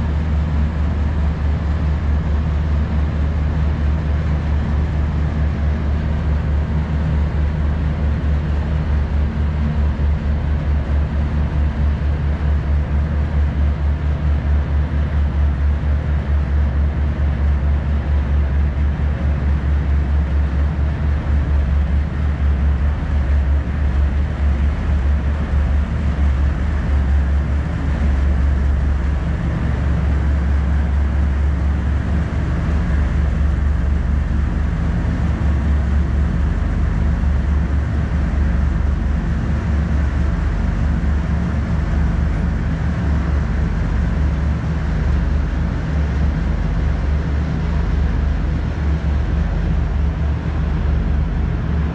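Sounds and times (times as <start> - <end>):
ship diesel engines humming: 7.2 - 51.9.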